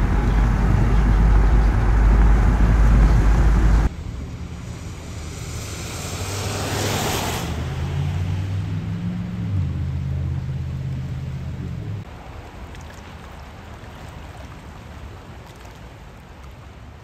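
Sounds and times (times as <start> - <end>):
low hum: 0.0 - 12.1
wind rumbling on microphone: 0.0 - 17.0
car tyres hissing on wet road: 4.5 - 8.4.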